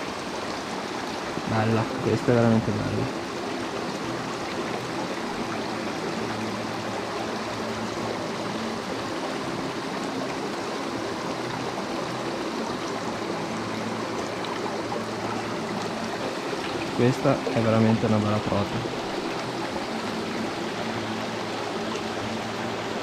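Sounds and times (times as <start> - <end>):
mountain stream running: 0.0 - 23.0.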